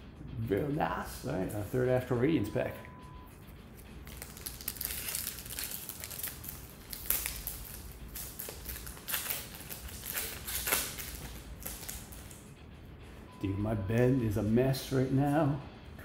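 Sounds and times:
foil wrapper crinkling: 0:04.0 - 0:12.4.

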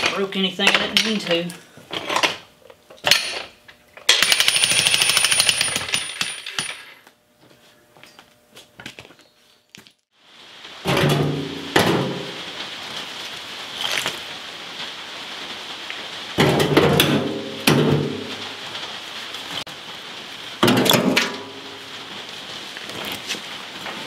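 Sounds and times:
jackhammer pounding concrete: 0:04.2 - 0:06.7.

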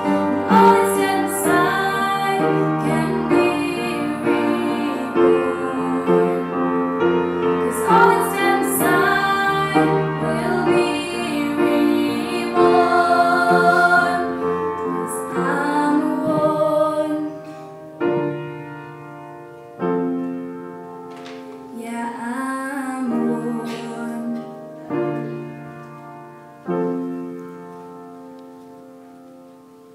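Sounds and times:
piano chords ringing: 0:00.0 - 0:29.9
woman singing: 0:07.7 - 0:14.4, 0:15.0 - 0:17.4, 0:21.7 - 0:24.6.

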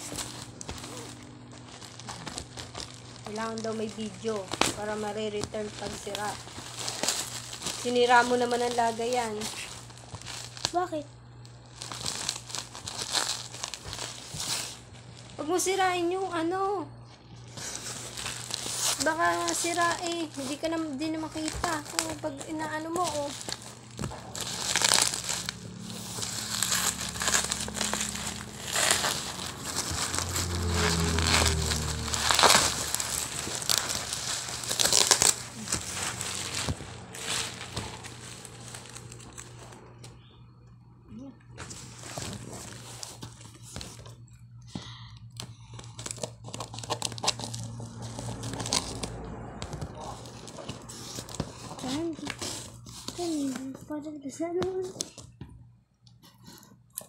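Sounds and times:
plastic bag crinkling: 0:00.0 - 0:16.2, 0:17.4 - 0:40.3, 0:41.6 - 0:44.2, 0:45.4 - 0:53.9
steady low hum: 0:00.0 - 0:54.8
tape and cardboard tearing: 0:17.5 - 0:39.7, 0:46.0 - 0:53.6.

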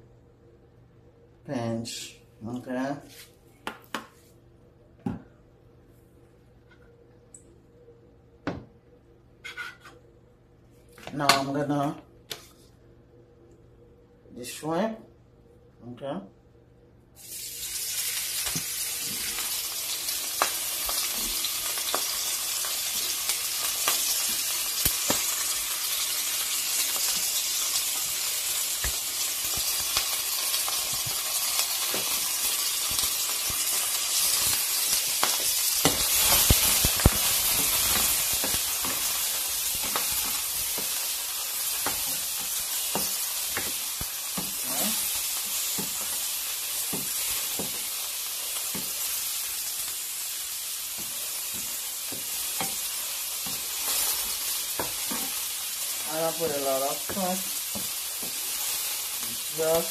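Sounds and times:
shrimp sizzling in a frying pan: 0:17.2 - 0:59.9.

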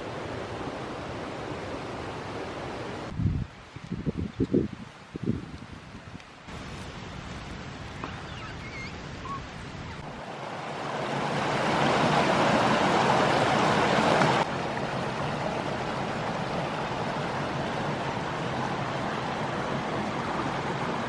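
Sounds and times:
waterfall rushing over rocks: 0:06.5 - 0:21.0.

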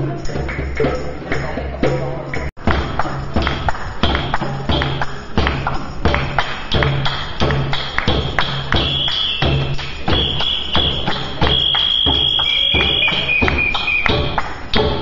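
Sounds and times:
hand drum beating: 0:00.0 - 0:15.0
tambourine: 0:00.0 - 0:15.0
long high held notes: 0:09.0 - 0:14.4.

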